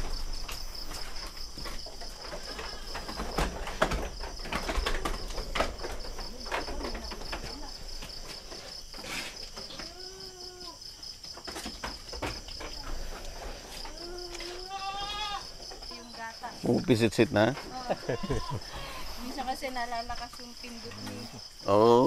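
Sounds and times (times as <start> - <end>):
knocks and clatter: 0.0 - 9.9, 11.2 - 13.9
crickets chirping: 0.0 - 22.0.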